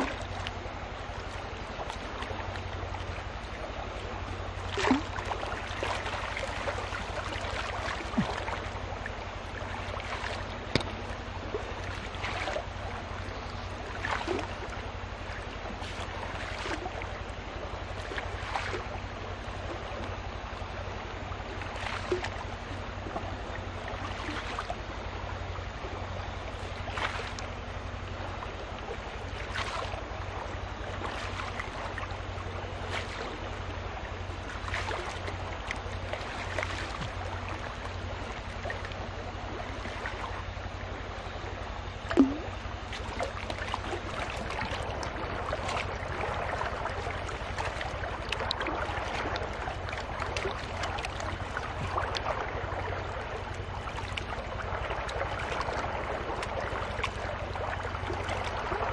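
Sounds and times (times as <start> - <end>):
water sloshing in gold pan: 4.6 - 12.8, 13.4 - 17.1, 18.0 - 18.9, 26.6 - 27.5, 29.3 - 30.0, 32.7 - 33.4, 34.4 - 39.0, 42.1 - 58.9.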